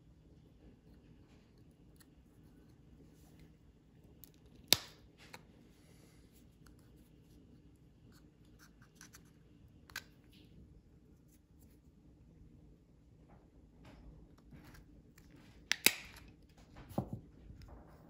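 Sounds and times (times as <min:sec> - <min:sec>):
sharp plastic snap: 0:04.6 - 0:05.0, 0:15.7 - 0:16.3.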